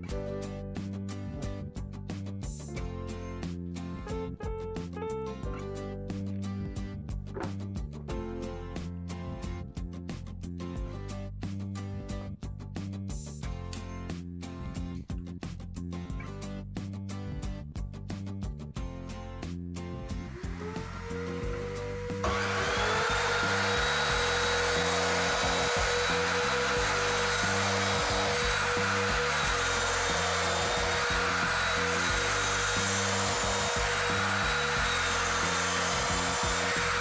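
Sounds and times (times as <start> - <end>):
background music: 0.0 - 37.0
miter saw motor whine: 20.2 - 37.0
saw blade cutting wood: 20.2 - 37.0.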